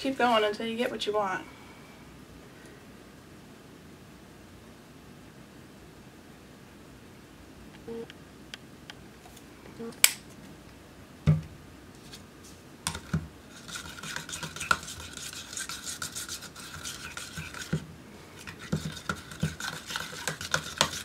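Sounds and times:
knife scraping paint in plastic cup: 0:12.9 - 0:17.8, 0:18.4 - 0:21.0.

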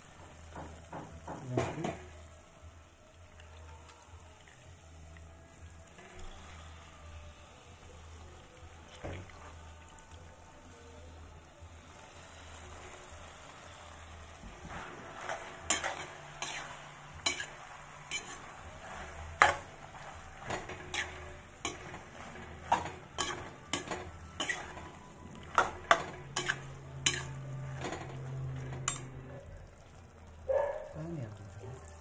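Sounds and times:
low sizzle: 0:00.0 - 0:32.0
metal spatula scraping a pan: 0:12.2 - 0:29.4.

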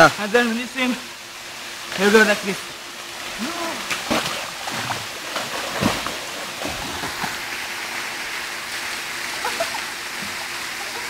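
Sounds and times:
swimmer splashing in pool: 0:03.2 - 0:11.0.

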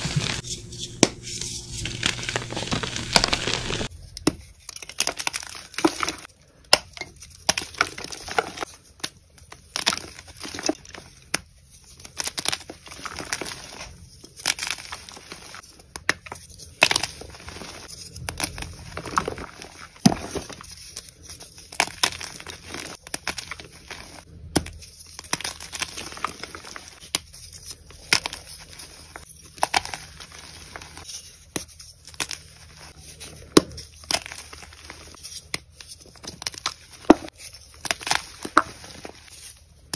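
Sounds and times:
chalk blocks crunching and crackling: 0:00.0 - 0:39.9.

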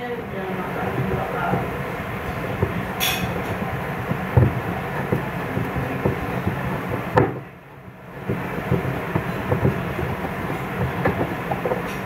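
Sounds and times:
steady rumbling noise: 0:00.0 - 0:12.0.

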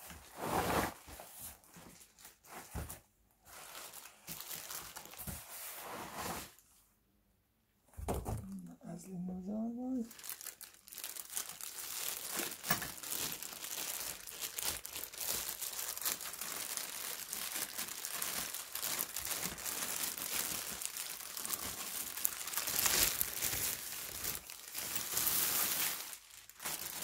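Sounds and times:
plastic bag crinkling: 0:03.5 - 0:05.6, 0:09.6 - 0:27.0.

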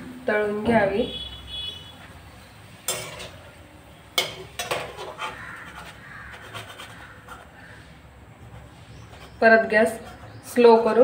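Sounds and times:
oil sizzling: 0:00.0 - 0:09.0
metal skimmer scraping pan: 0:04.2 - 0:07.6.

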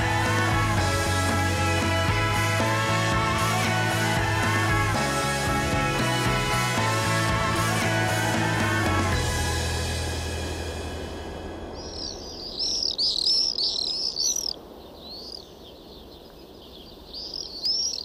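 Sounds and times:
city noise hum: 0:00.0 - 0:16.6
swifts screaming: 0:11.6 - 0:18.0.

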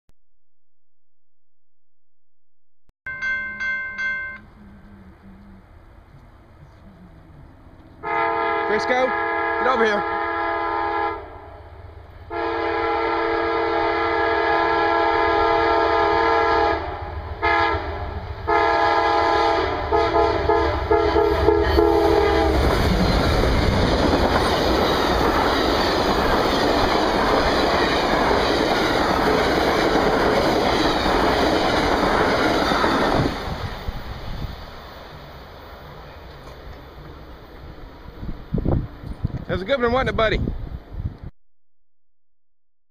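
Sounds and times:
train air horn: 0:08.0 - 0:11.5, 0:12.3 - 0:22.6
train wheels clattering on rails: 0:22.2 - 0:33.9.

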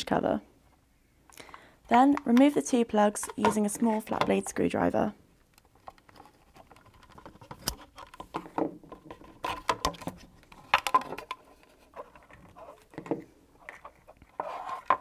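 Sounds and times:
plastic plugs clicking and scraping: 0:01.3 - 0:15.0.

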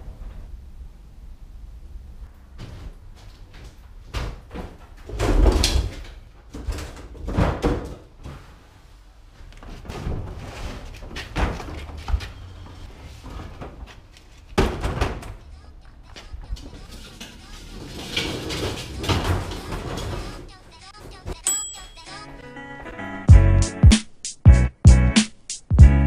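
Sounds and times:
plastic carts rolled over concrete: 0:16.5 - 0:21.3.

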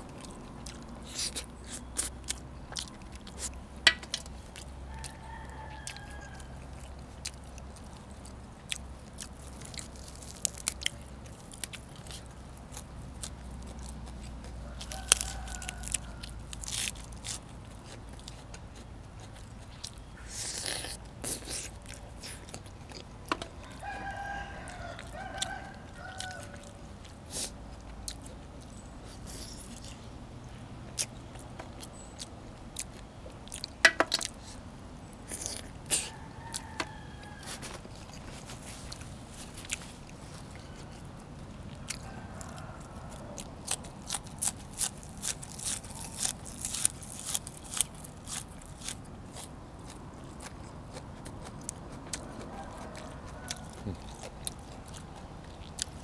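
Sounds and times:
chewing and crunching food: 0:00.0 - 0:56.0
rooster crowing: 0:04.8 - 0:06.9, 0:14.5 - 0:16.7, 0:23.4 - 0:26.9, 0:35.9 - 0:37.9, 0:41.7 - 0:43.9, 0:52.1 - 0:55.0.

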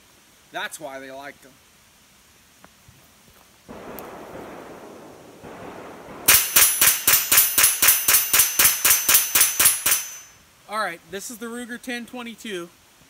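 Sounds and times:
rifle shots in rapid succession: 0:03.7 - 0:10.2.

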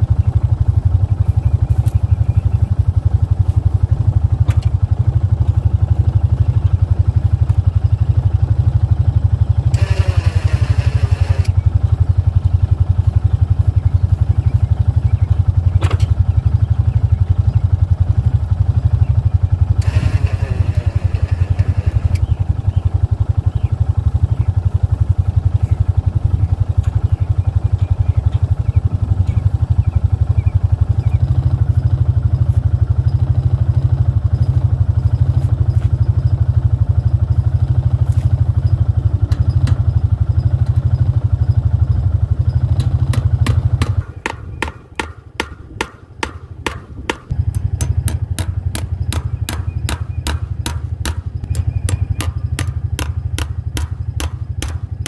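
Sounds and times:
engine idling low rumble: 0:00.0 - 0:55.0
sharp evenly spaced clicks: 0:42.7 - 0:55.0.

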